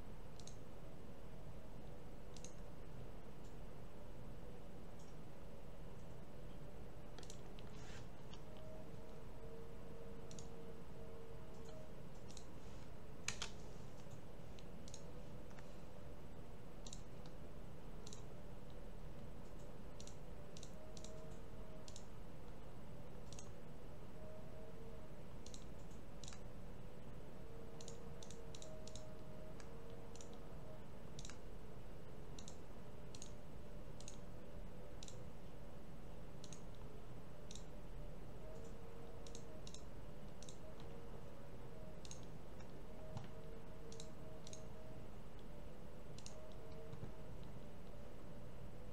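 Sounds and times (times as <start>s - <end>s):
low steady hum: 0.0s - 48.9s
computer mouse clicking: 0.3s - 0.7s, 2.3s - 2.7s, 5.0s - 5.2s, 6.0s - 12.6s, 13.2s - 15.7s, 16.8s - 17.4s, 18.0s - 23.6s, 25.4s - 26.5s, 27.7s - 30.5s, 31.1s - 31.5s, 32.3s - 34.3s, 34.9s - 35.6s, 36.4s - 37.8s, 38.4s - 41.1s, 41.7s - 48.0s.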